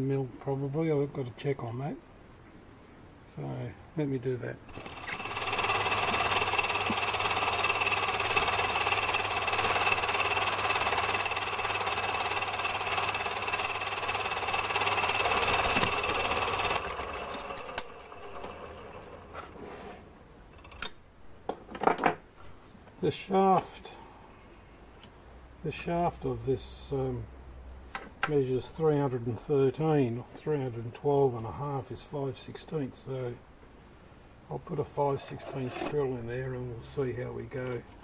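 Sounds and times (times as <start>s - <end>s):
lathe motor whine: 4.7s - 19.6s
metallic clicks and knocks: 37.6s - 38.0s.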